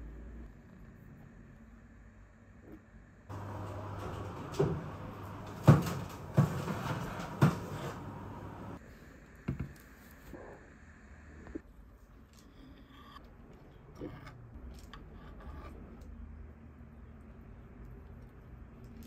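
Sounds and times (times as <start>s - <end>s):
oven door opening: 3.3s - 8.8s.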